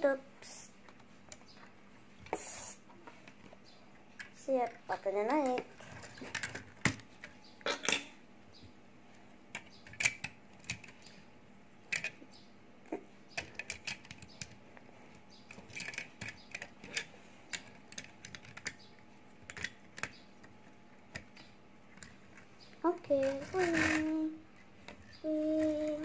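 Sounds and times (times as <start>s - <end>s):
plastic toy bricks clicking: 13.4s - 14.6s, 15.5s - 18.8s, 19.5s - 20.2s, 23.2s - 24.1s.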